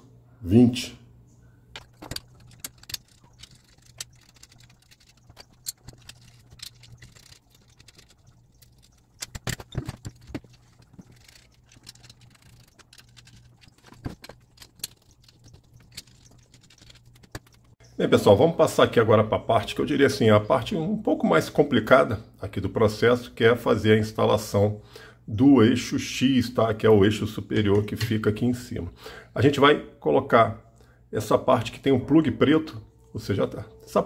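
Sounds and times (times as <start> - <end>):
metal screws clinking: 1.8 - 17.6.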